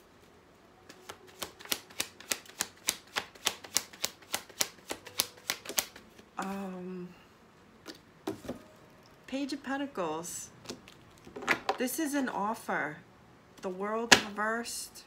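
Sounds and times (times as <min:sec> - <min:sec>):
cards shuffling taps and slaps: 0:00.9 - 0:06.6.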